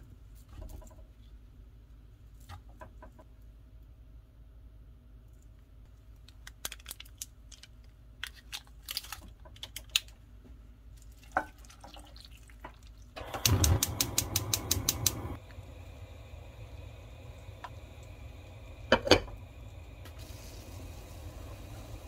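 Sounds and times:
foil crinkling: 0:06.2 - 0:10.1
gas stove igniter ticking: 0:13.2 - 0:15.5.

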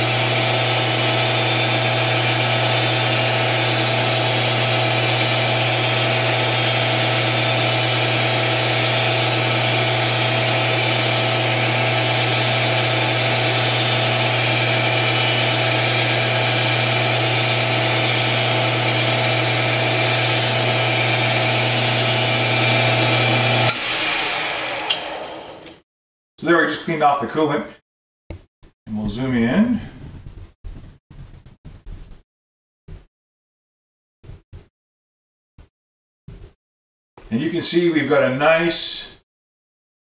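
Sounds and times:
lathe motor hum: 0:00.0 - 0:25.5.

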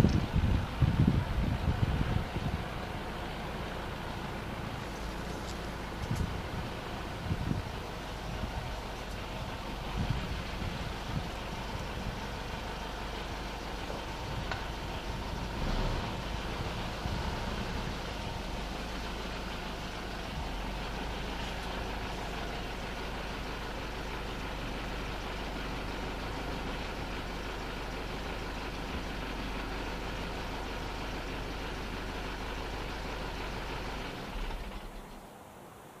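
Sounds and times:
vehicle engine running: 0:00.0 - 0:35.7.

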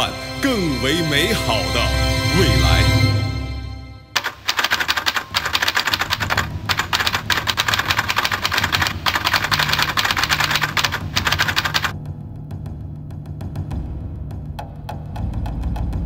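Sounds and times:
typewriter keys clicking: 0:04.2 - 0:11.9.

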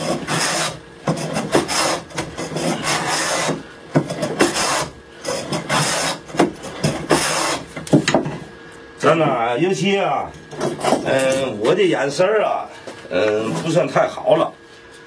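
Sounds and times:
hand plane shaving wood: 0:00.0 - 0:07.7.

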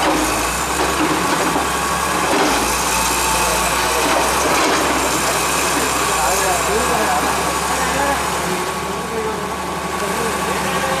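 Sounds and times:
engine running: 0:00.0 - 0:11.0
street noise: 0:00.0 - 0:11.0.

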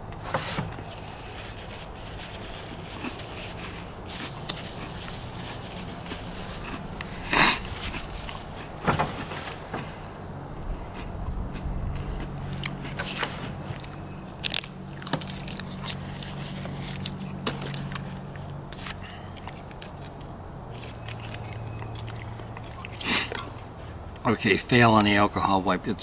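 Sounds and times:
steady low hum: 0:00.0 - 0:26.0
foil packets crinkling: 0:00.8 - 0:09.7, 0:12.8 - 0:23.0.

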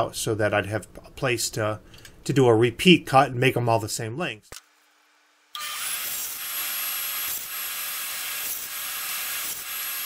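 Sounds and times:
bandsaw cutting plywood: 0:05.6 - 0:10.0.

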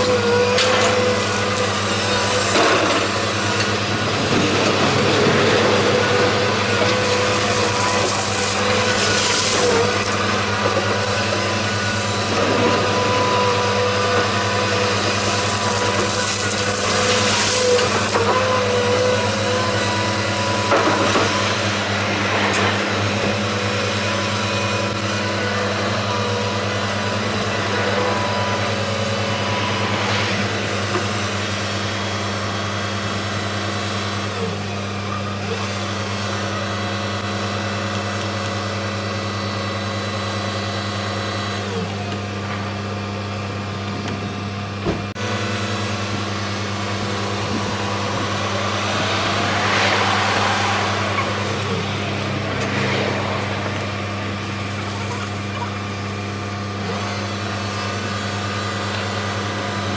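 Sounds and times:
excavator diesel engine running: 0:00.0 - 0:59.9
high whine: 0:26.0 - 0:32.6, 0:45.3 - 0:56.4.

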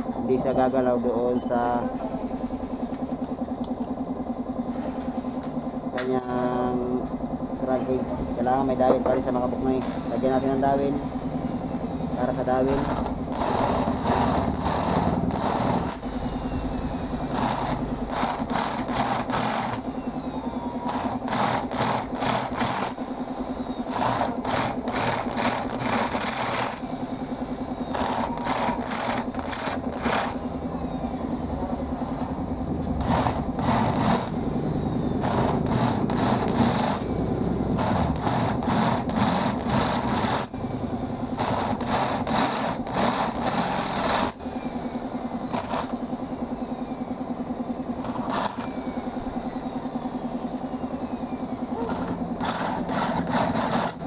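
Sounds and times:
electric drill drilling into metal: 0:12.2 - 0:31.3, 0:32.2 - 0:47.0, 0:48.0 - 0:50.8, 0:51.7 - 0:54.0.

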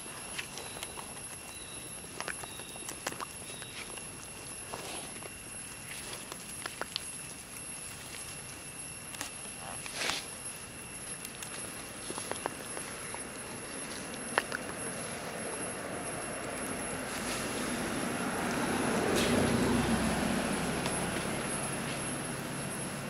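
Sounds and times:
clicks and rustles in dry leaves: 0:00.0 - 0:22.7
vehicle rumbling: 0:12.1 - 0:23.0.

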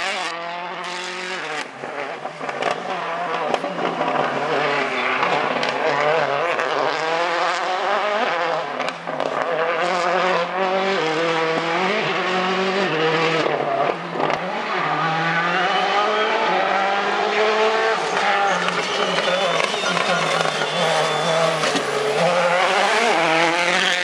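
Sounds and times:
rally car engine accelerating: 0:00.0 - 0:24.0.

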